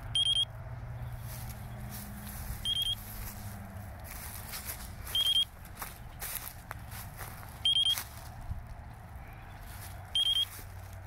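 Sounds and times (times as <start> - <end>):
high pulsed beeps: 0.1 - 0.5, 2.6 - 3.0, 5.1 - 5.5, 7.6 - 8.0, 10.2 - 10.5
footsteps: 1.2 - 11.0.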